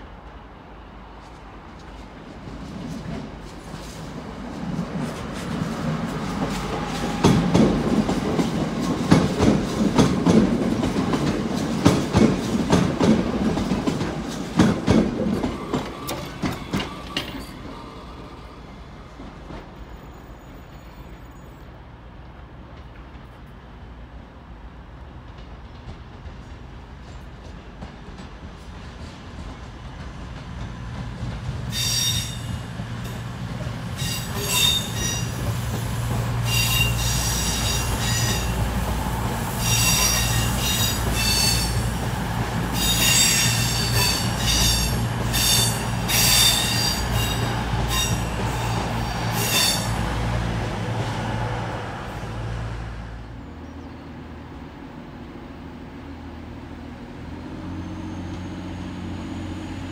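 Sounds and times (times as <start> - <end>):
wheel flanges squealing: 34.0 - 35.5, 39.6 - 41.9.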